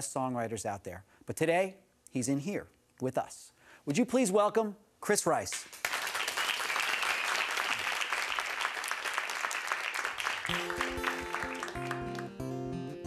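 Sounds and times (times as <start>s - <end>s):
audience applauding: 5.8s - 12.7s
acoustic guitar playing: 10.5s - 13.0s.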